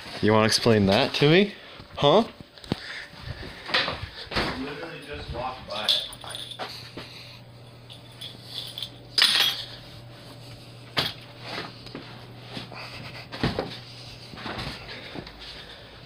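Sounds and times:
low steady hum: 0:00.0 - 0:16.0
knocks and rustles: 0:13.3 - 0:15.3.

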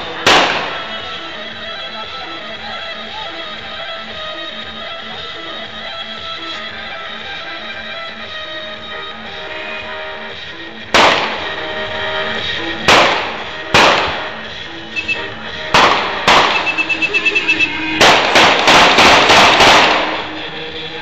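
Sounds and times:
music: 0:00.0 - 0:21.0
loud explosive bangs: 0:00.1 - 0:01.2, 0:10.9 - 0:20.8.

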